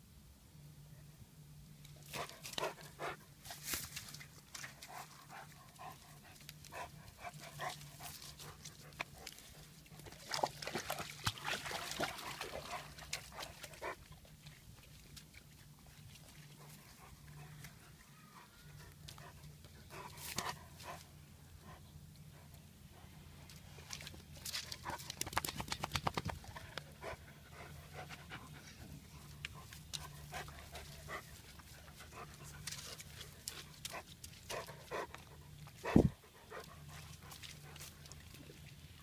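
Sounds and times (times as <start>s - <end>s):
faint low hum: 0.0s - 39.0s.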